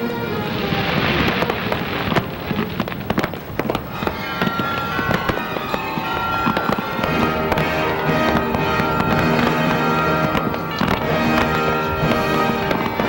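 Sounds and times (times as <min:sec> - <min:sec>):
firework shells bursting: 0:00.4 - 0:13.0
music with held notes: 0:04.0 - 0:13.0.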